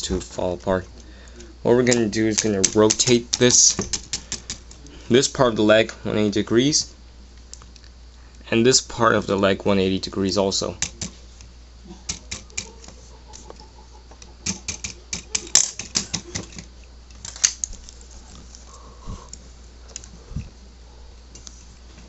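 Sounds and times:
plastic pieces clicking: 14.4 - 18.6.

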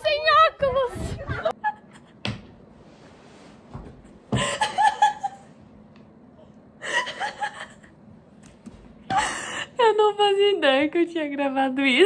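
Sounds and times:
woman laughing: 1.2 - 2.2, 4.3 - 5.6, 6.8 - 8.0.

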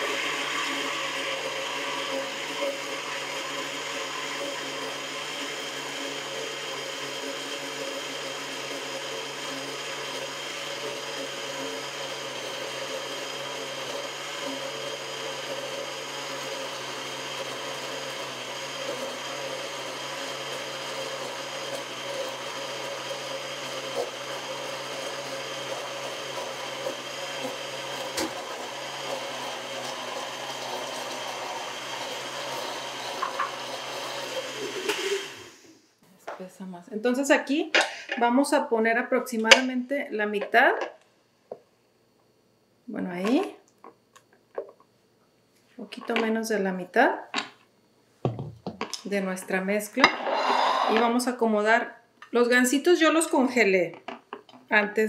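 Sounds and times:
blender motor whine: 0.0 - 35.8, 50.0 - 51.4.

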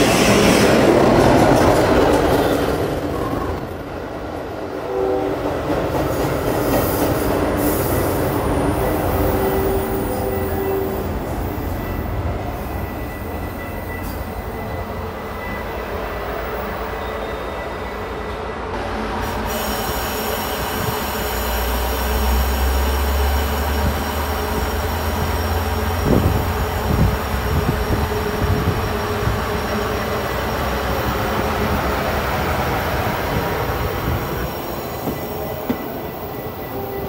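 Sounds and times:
train wheels rumbling on rails: 0.0 - 37.0.

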